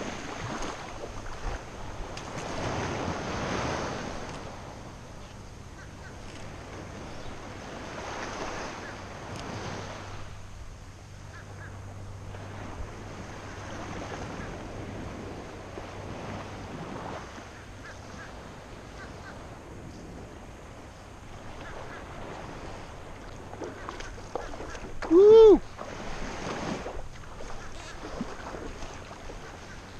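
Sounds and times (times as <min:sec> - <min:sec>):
low steady hum: 0:00.0 - 0:29.9
small waves lapping: 0:00.0 - 0:29.9.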